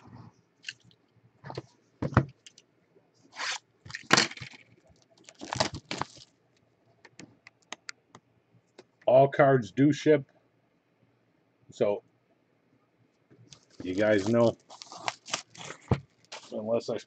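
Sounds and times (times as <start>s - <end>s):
plastic-wrapped boxes scraping: 13.6s - 16.6s.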